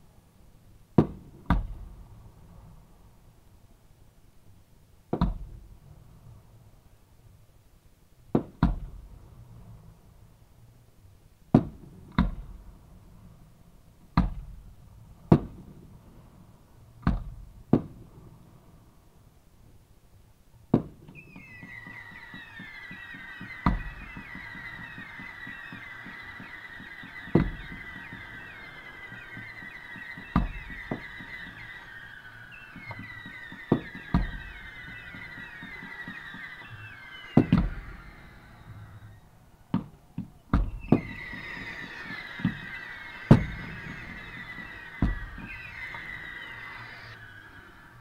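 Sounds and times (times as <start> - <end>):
firework bangs: 20.7 - 48.0
firework whistling: 20.8 - 48.0.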